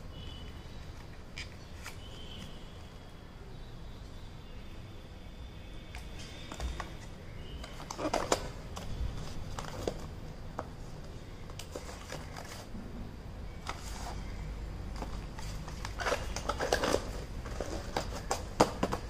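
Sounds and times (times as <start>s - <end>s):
cardboard packaging rustling and clicking: 6.2s - 10.6s, 14.9s - 19.0s.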